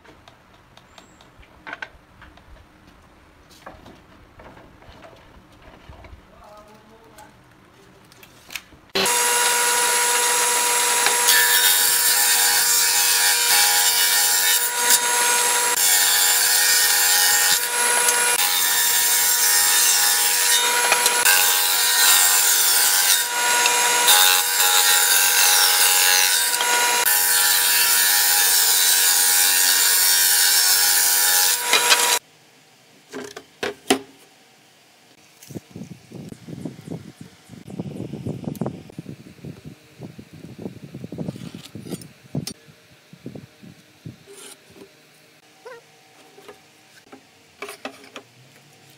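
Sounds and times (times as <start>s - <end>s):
table saw cutting wood: 9.0s - 32.2s.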